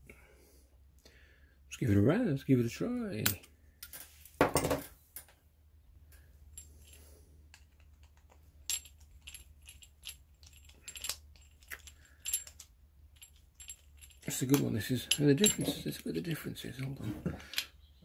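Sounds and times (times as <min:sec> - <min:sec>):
metal clatter: 0:06.6 - 0:16.1.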